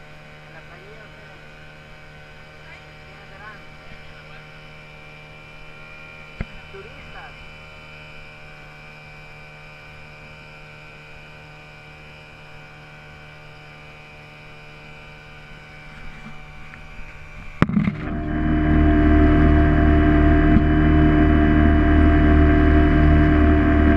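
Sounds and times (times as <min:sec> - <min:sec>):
mechanical hum: 0:00.0 - 0:23.9
loud swelling sound: 0:16.9 - 0:23.9.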